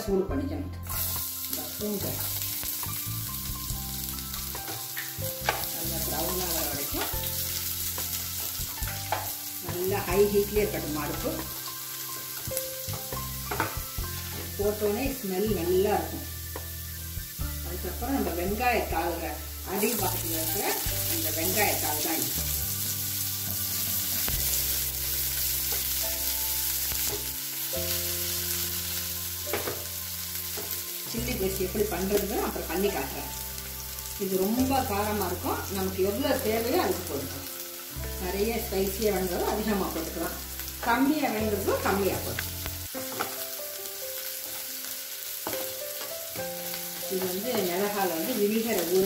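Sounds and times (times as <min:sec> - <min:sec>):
garlic sizzling in hot oil: 0:00.8 - 0:49.0.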